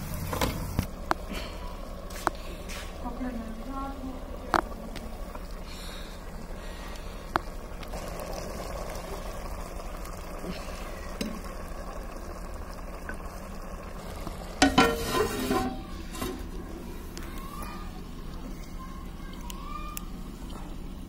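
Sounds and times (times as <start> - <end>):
vegetables sizzling in pot: 0.0 - 20.4
metal lid clattering on pot: 14.6 - 16.5.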